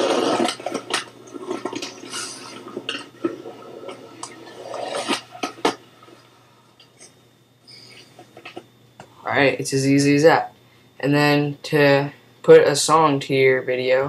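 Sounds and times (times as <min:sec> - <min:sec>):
skateboard wheels rolling on concrete: 0:00.0 - 0:02.5, 0:03.3 - 0:05.8.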